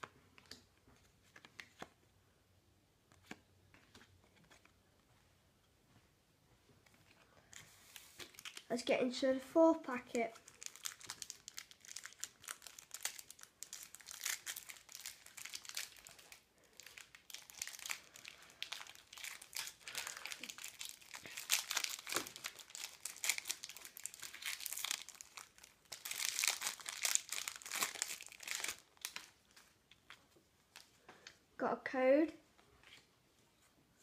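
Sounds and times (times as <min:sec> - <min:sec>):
foil packet crinkling: 0:08.0 - 0:08.9, 0:10.2 - 0:30.2.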